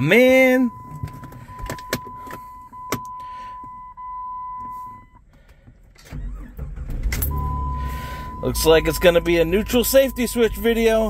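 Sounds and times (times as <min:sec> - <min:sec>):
car engine rumbling: 0:00.0 - 0:11.0
ignition key clicks: 0:00.9 - 0:03.3
high warning tone: 0:07.3 - 0:11.0.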